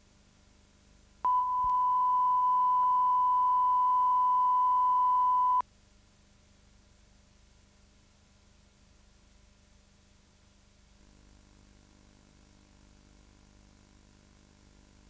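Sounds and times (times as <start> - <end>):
faint hum: 0.0 - 5.6, 11.0 - 15.0.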